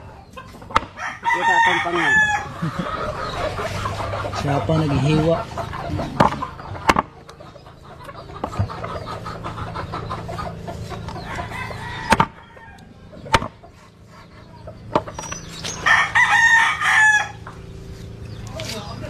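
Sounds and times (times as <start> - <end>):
chickens clucking: 0.0 - 19.0
rooster crowing: 0.9 - 3.4, 11.2 - 13.1, 15.8 - 17.5.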